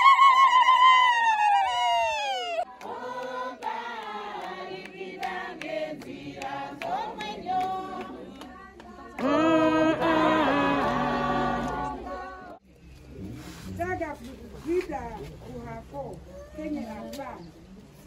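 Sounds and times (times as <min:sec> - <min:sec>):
women singing in chorus: 0:02.6 - 0:12.6.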